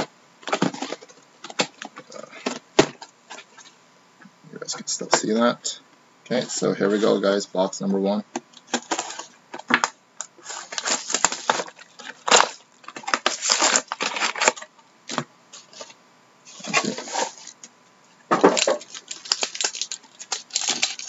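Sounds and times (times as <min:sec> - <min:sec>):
plastic wrap crinkling and tearing: 0:08.6 - 0:17.7, 0:18.3 - 0:21.0.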